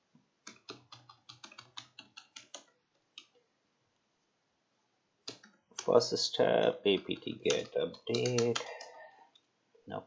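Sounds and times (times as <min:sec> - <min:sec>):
computer keyboard typing: 0:00.4 - 0:03.4, 0:05.2 - 0:05.9, 0:06.9 - 0:09.0.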